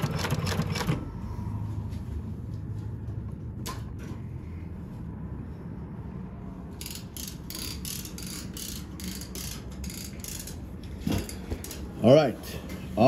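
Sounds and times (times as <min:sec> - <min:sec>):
sewing machine running: 0:00.0 - 0:01.0.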